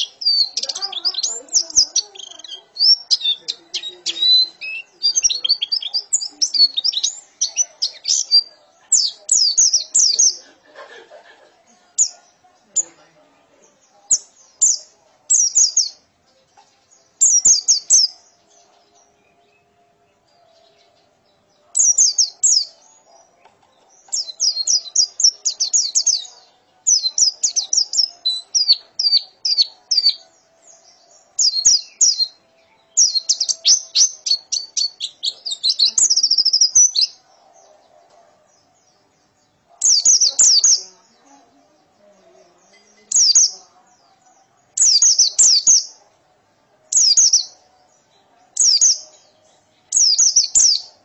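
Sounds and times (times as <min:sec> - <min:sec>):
bird singing rapid high notes: 0:00.0 - 0:10.4, 0:23.9 - 0:37.2.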